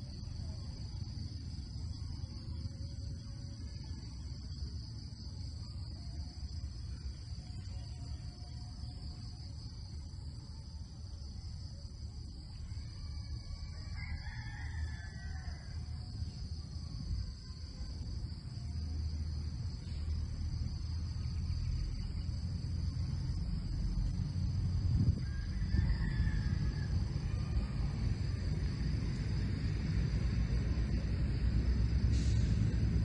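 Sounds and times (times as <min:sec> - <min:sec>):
insects droning: 0:00.0 - 0:33.0
low rumble: 0:15.7 - 0:33.0.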